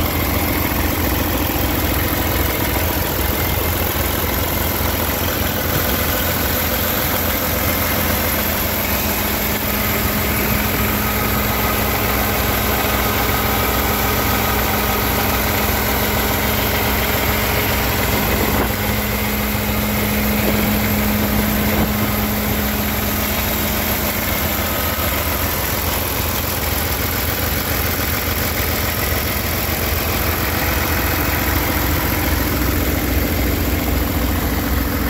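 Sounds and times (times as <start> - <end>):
diesel truck engine idling: 0.0 - 35.0.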